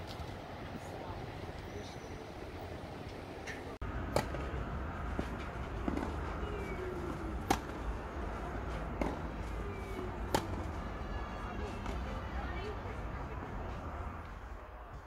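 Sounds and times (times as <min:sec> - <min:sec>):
low outdoor rumble: 0:00.0 - 0:15.0
rackets hitting tennis ball: 0:04.0 - 0:07.9, 0:08.6 - 0:10.8.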